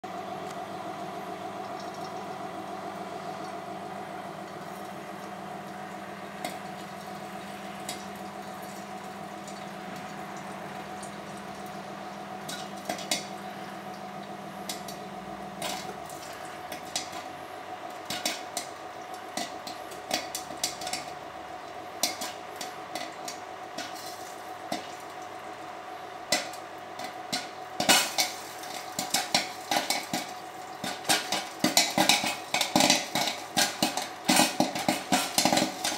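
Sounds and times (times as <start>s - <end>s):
popcorn machine motor hum: 0.0s - 35.9s
popcorn kernels popping: 12.4s - 14.0s, 14.6s - 25.3s, 26.3s - 35.9s.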